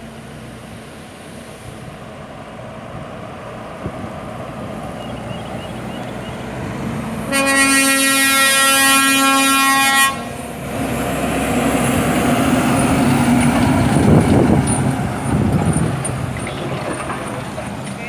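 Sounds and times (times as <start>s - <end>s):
diesel truck passing: 0.0s - 18.0s
truck air horn: 7.3s - 10.4s.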